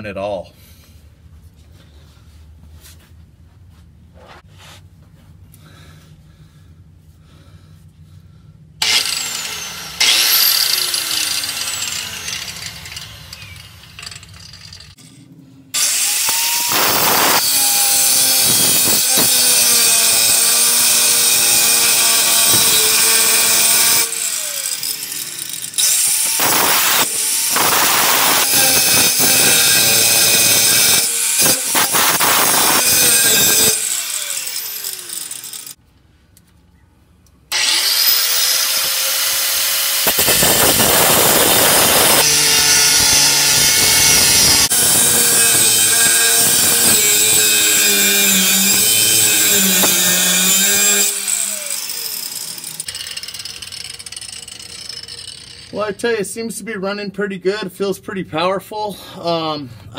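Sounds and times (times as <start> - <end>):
grinder motor winding down: 8.8 - 15.0, 15.8 - 35.8, 37.5 - 56.0
angle grinder cutting metal: 8.8 - 35.8, 37.5 - 56.0.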